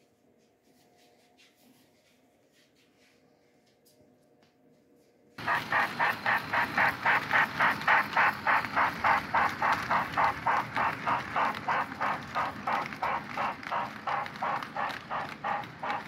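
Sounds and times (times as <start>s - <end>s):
model steam locomotive chuffing: 5.4s - 16.0s.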